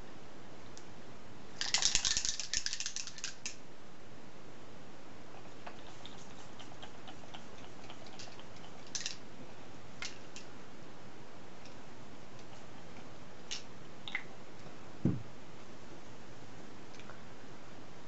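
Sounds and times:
dull thump on a table: 15.0 - 15.3.

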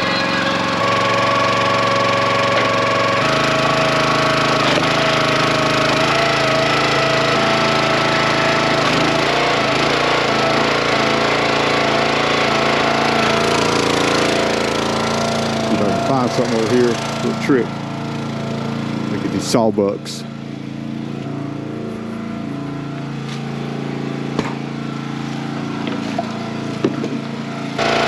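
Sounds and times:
small gas engine running: 0.0 - 28.0.

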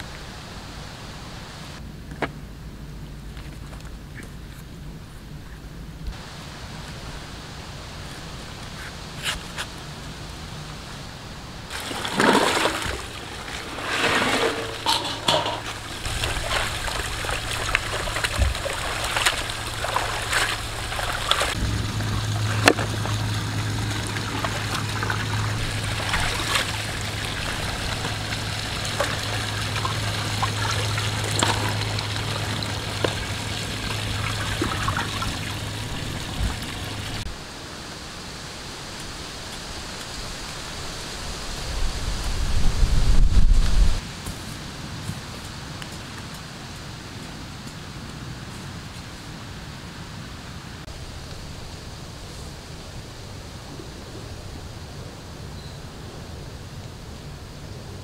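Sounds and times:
steady low hum: 0.0 - 37.6
water splashing in metal pot: 11.7 - 37.2.

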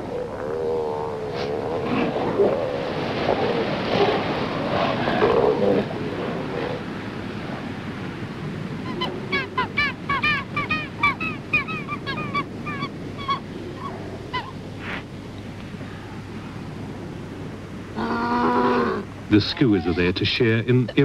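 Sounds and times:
wind: 0.0 - 21.0
surf: 1.2 - 21.0
skuas calling: 8.8 - 15.0, 18.0 - 21.0.

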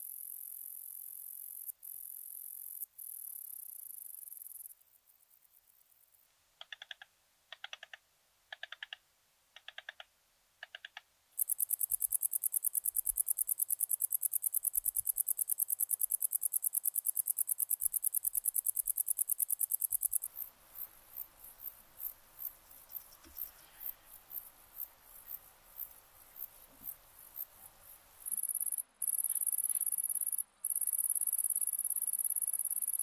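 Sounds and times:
low bush-cricket chirps: 0.0 - 6.3, 11.3 - 33.0
bush-cricket high ticks: 6.6 - 9.0, 9.6 - 33.0
short high bush-cricket chirps: 11.4 - 33.0.

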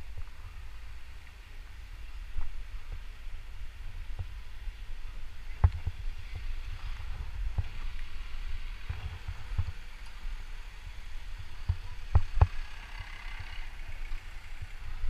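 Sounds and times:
vehicle rumbling along street: 0.0 - 15.0.

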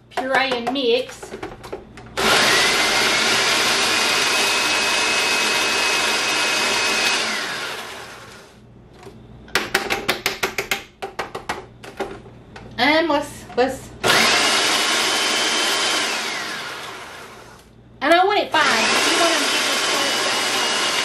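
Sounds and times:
food processor motor whining: 2.2 - 8.5, 14.0 - 17.7, 18.6 - 21.0.

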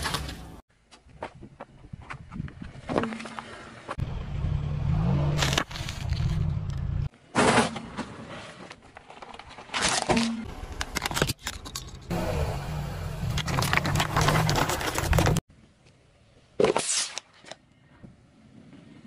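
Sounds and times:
low car rumble: 4.0 - 7.1, 11.9 - 15.4
objects crunching under tyre: 5.3 - 12.1, 13.3 - 15.4.

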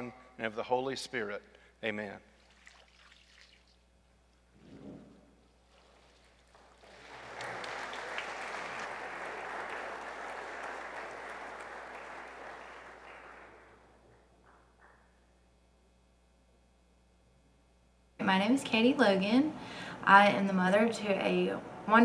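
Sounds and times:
congregation clapping: 6.5 - 15.2.

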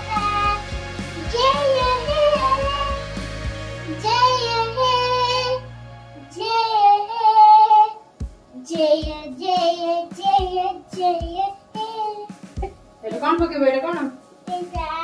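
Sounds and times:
child singing: 0.0 - 3.1, 3.9 - 5.6, 6.2 - 12.4, 14.4 - 15.0.

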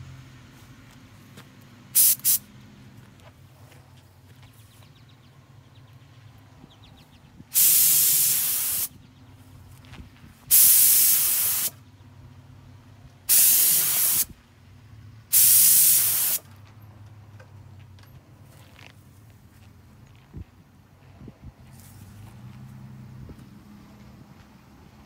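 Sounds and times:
air spray gun spraying paint: 2.0 - 2.4, 7.5 - 8.9, 10.5 - 11.8, 13.3 - 14.3, 15.3 - 16.5.

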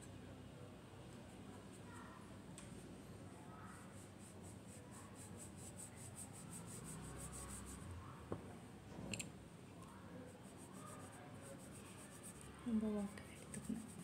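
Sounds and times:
brush strokes on paper: 3.7 - 8.0, 10.2 - 14.0.

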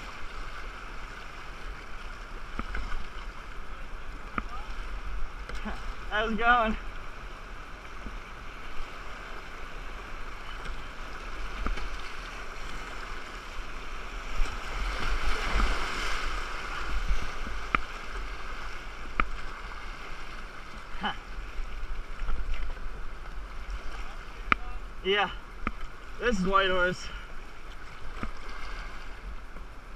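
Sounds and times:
rushing river water: 0.0 - 29.9
paddle strokes in water: 6.9 - 29.9.

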